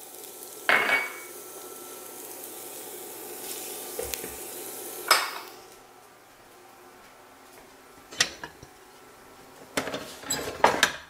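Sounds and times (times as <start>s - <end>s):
food sizzling in hot oil: 0.0s - 5.8s
faint burner whine: 0.0s - 11.0s.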